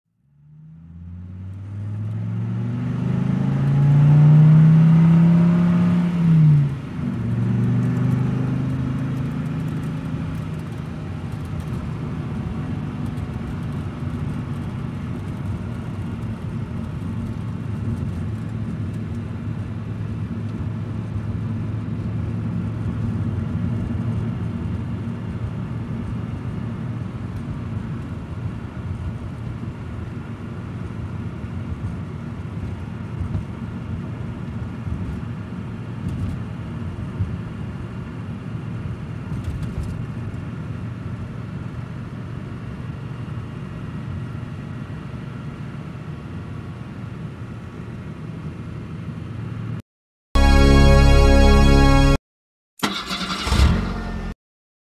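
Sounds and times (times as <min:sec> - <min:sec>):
car engine accelerating: 0:00.4 - 0:12.7, 0:50.4 - 0:52.2.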